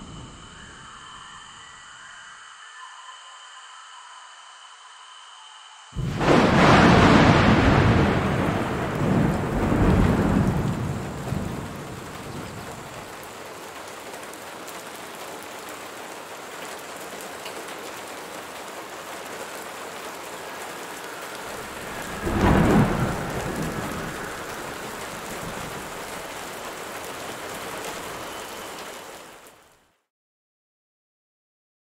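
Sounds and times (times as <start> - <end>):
steady rain: 5.8 - 30.1
thunderclap rolling: 6.0 - 13.7, 18.8 - 28.4.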